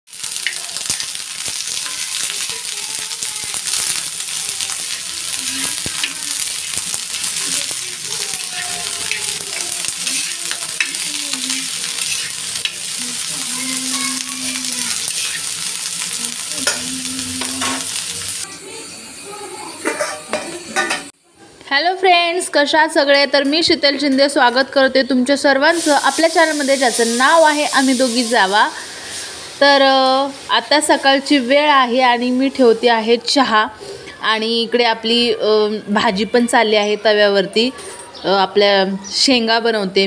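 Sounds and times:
beans sizzling on griddle: 0.1s - 21.1s, 25.7s - 34.5s
spatula scraping pan: 3.5s - 16.0s.

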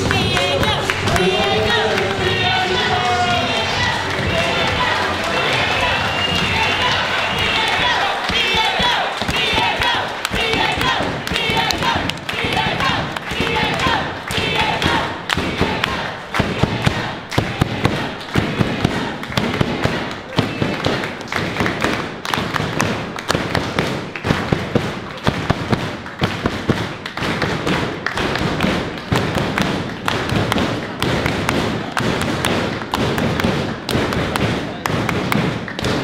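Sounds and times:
crowd voices: 0.0s - 22.2s
crowd clapping and slapping: 0.0s - 36.0s.

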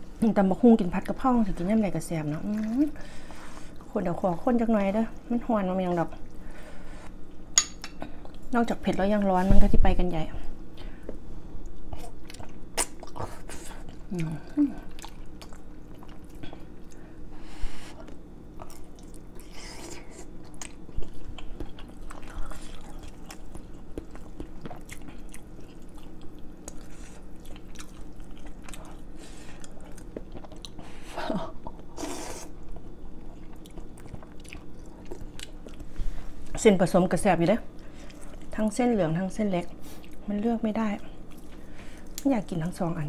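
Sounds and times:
chewing noodle soup: 1.6s - 3.9s, 11.6s - 17.1s, 18.0s - 31.0s, 31.6s - 36.6s.

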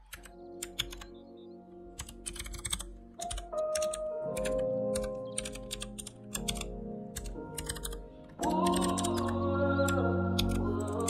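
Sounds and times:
keyboard key clicks: 0.0s - 1.1s, 2.0s - 8.0s
background music: 0.0s - 11.0s.

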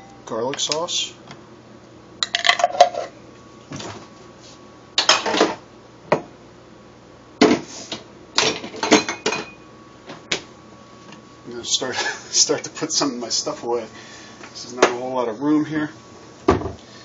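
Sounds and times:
dishes and utensils clattering: 8.4s - 9.6s.

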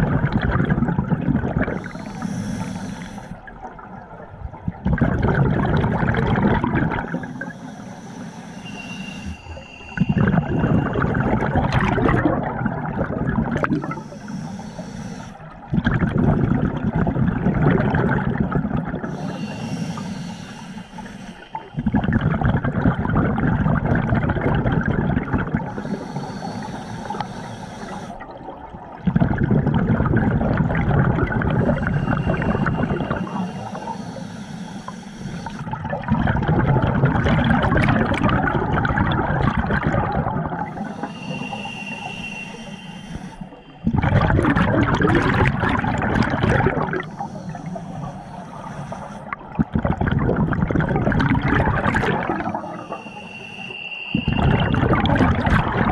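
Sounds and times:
bubbling exhaled bubbles: 0.0s - 2.4s, 3.4s - 7.5s, 9.3s - 14.1s, 15.6s - 19.7s, 21.5s - 26.0s, 27.8s - 34.0s, 35.4s - 41.7s, 43.4s - 47.6s, 49.3s - 53.0s, 54.1s - 55.9s
hissing regulator inhalations: 1.8s - 3.5s, 6.9s - 12.0s, 13.7s - 15.6s, 19.0s - 22.0s, 25.7s - 28.4s, 31.4s - 35.9s, 40.4s - 44.0s, 45.6s - 49.8s, 51.8s - 55.9s.

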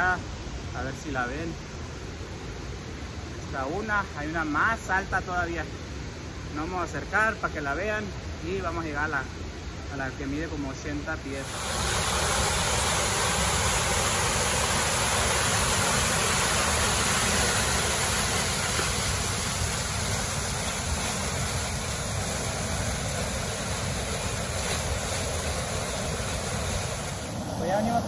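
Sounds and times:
creek water rushing over rocks: 11.2s - 28.0s.

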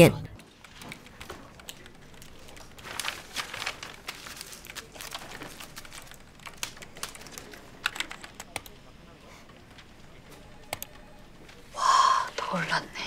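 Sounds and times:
keyboard typing: 6.4s - 8.8s.

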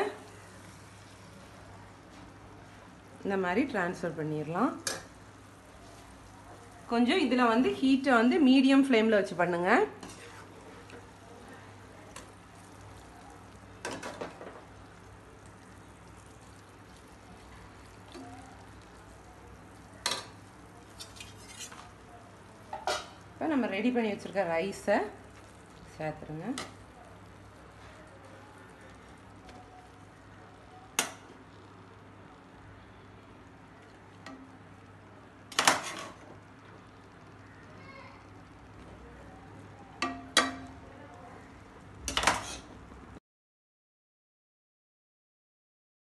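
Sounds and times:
steel spoon scraping a pot: 20.9s - 21.9s, 42.1s - 42.7s.

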